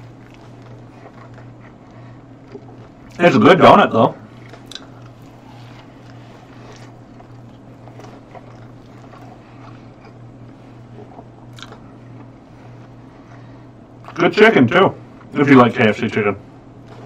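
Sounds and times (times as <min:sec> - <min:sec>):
man chewing sticky food: 0:00.0 - 0:03.3, 0:04.2 - 0:14.3, 0:16.5 - 0:17.0
low electrical hum: 0:00.0 - 0:17.0
wet mouth clicks: 0:04.5 - 0:05.2.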